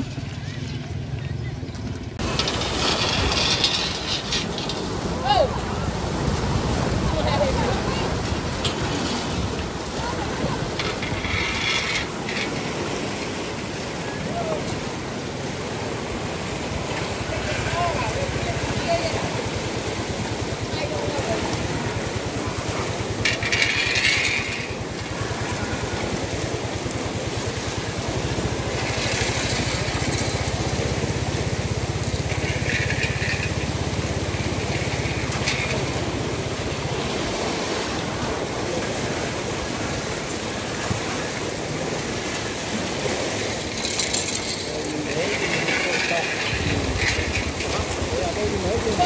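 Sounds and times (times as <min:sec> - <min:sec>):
small engine chugging: 0:27.8 - 0:36.4.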